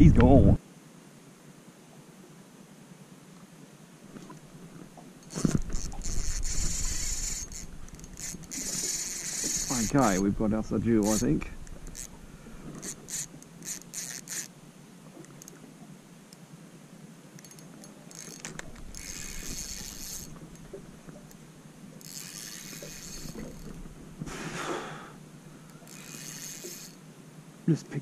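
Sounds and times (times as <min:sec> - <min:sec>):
fishing reel clicks: 0:05.2 - 0:10.4, 0:11.0 - 0:12.2, 0:12.8 - 0:14.5, 0:17.4 - 0:21.4, 0:22.0 - 0:23.8, 0:25.6 - 0:27.0
fishing reel ratcheting: 0:05.2 - 0:10.4, 0:11.0 - 0:12.2, 0:12.8 - 0:14.5, 0:17.4 - 0:21.4, 0:22.0 - 0:23.8, 0:25.6 - 0:27.0.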